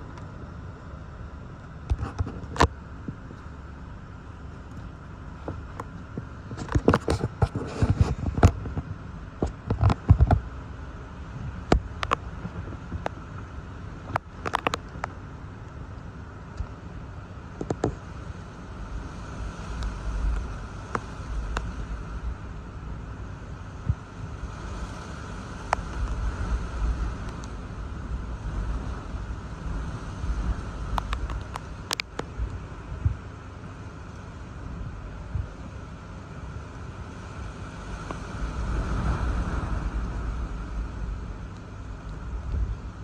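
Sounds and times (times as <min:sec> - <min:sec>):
wind and rain hissing: 0:00.0 - 0:43.0
wind gusts rumbling on microphone: 0:00.0 - 0:43.0
sharp tick: 0:30.9 - 0:32.6.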